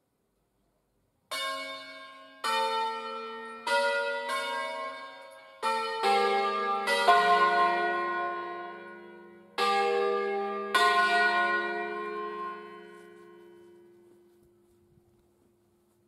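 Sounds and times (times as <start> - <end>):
church bells ringing: 1.3 - 14.4.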